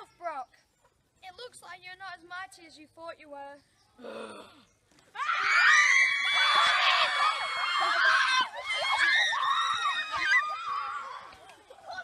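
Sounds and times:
children screaming and shrieking: 5.1s - 12.0s.

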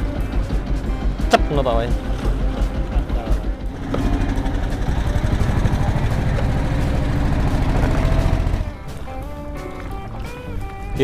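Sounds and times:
boat engine chugging: 0.0s - 10.7s.

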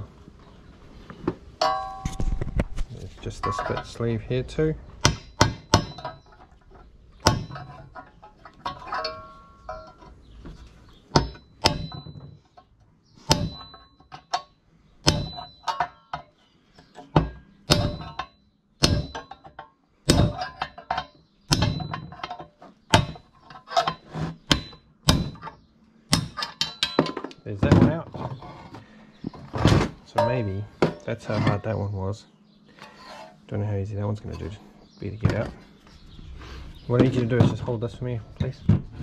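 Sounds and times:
hammer striking metal punch: 5.0s - 6.4s, 7.2s - 7.8s, 11.1s - 12.2s, 13.3s - 14.4s, 15.0s - 16.3s, 17.2s - 22.3s, 22.9s - 23.2s, 24.4s - 25.5s, 26.1s - 27.2s, 30.2s - 31.1s.

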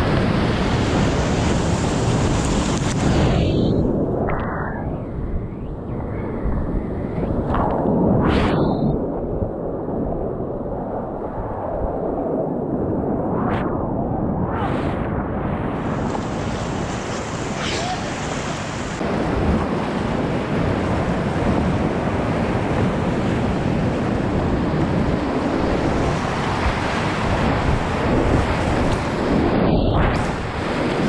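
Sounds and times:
wind buffeting microphone: 0.0s - 31.0s
whitewater rapids rushing: 17.2s - 19.0s.

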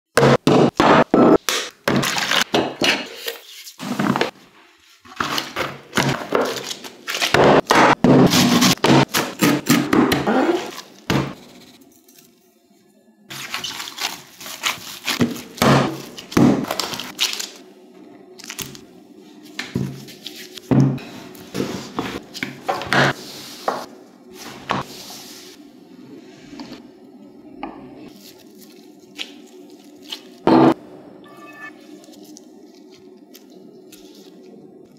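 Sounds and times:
dough being kneaded: 13.3s - 17.6s.

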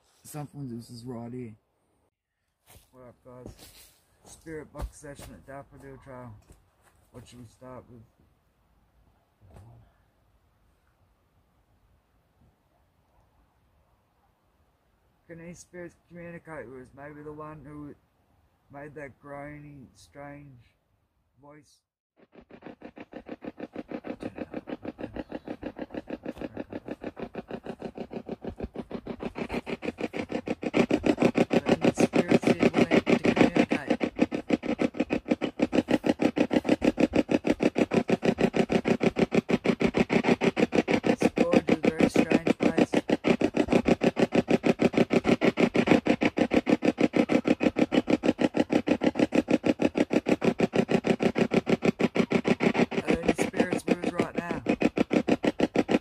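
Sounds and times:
chopping radio static: 30.7s - 34.3s, 41.0s - 43.2s, 52.8s - 55.0s.

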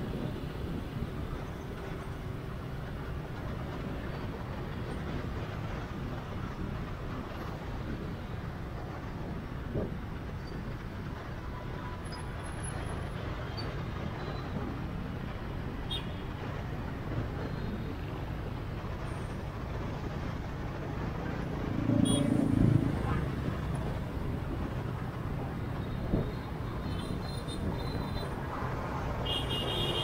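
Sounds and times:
motorbike engine and road noise: 0.0s - 30.0s.

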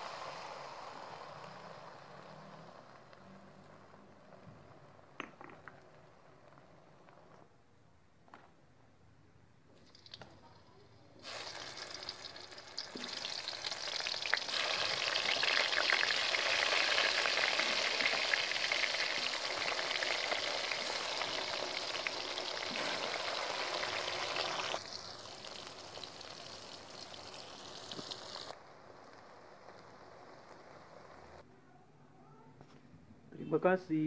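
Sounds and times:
food frying in hot oil: 0.0s - 4.8s, 9.8s - 31.4s.

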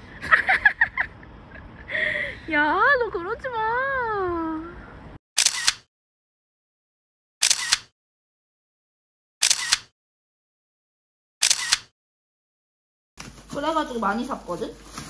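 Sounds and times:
camera shutter double click: 5.4s - 5.9s, 7.4s - 7.9s, 9.4s - 9.9s, 11.4s - 11.9s.

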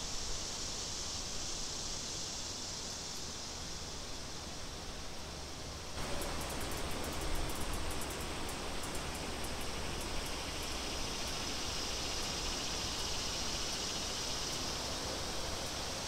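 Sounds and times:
wind and rustling hiss: 0.0s - 16.0s
high hissing band: 6.0s - 16.0s.

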